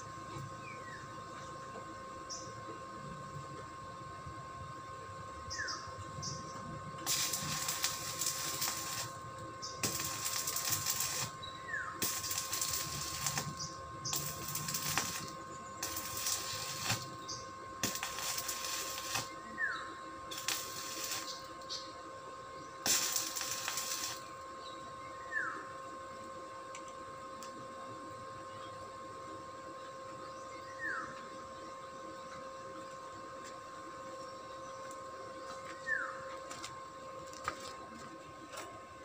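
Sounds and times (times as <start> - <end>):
arc welding crackling hiss: 0.0 - 0.8, 5.5 - 22.0, 22.6 - 24.5, 34.8 - 38.8.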